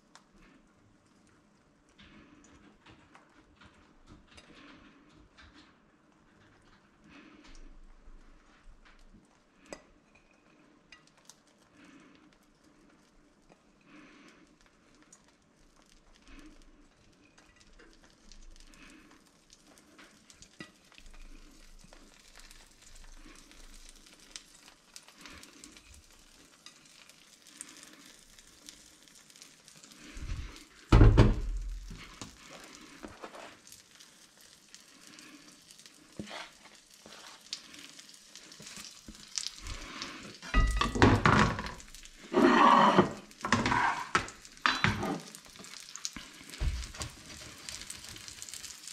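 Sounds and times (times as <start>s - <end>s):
egg sizzling in frying pan: 7.2s - 48.9s
clattering and handling noises: 29.9s - 33.8s, 38.5s - 48.6s
loud thud: 30.9s - 31.4s.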